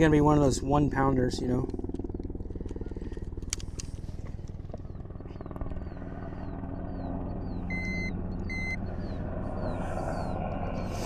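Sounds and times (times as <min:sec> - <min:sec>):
low motor hum: 0:00.0 - 0:11.0
short electronic beeps: 0:07.7 - 0:08.8.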